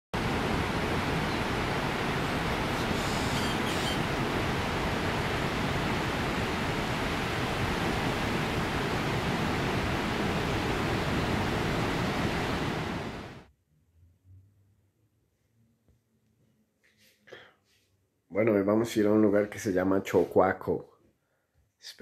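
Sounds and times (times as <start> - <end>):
ocean surf breaking: 0.2 - 13.4.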